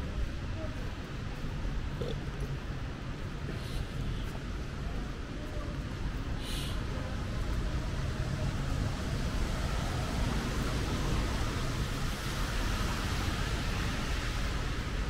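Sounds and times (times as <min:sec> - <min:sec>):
traffic on wet pavement: 0:00.0 - 0:15.0
falling rain: 0:04.4 - 0:15.0.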